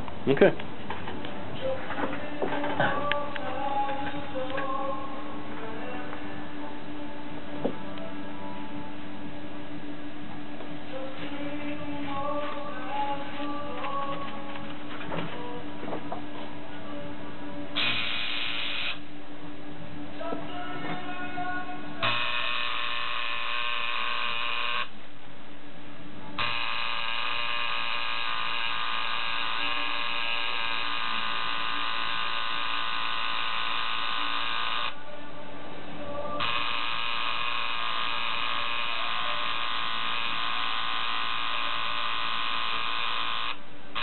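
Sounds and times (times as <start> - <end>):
tattoo machine buzzing: 17.8 - 19.0, 22.0 - 25.0, 26.4 - 35.0, 36.4 - 44.0.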